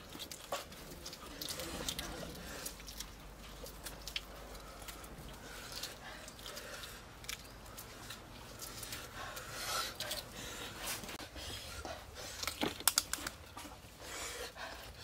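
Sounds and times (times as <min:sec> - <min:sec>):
eggshell cracking and scraping: 0:12.4 - 0:13.4.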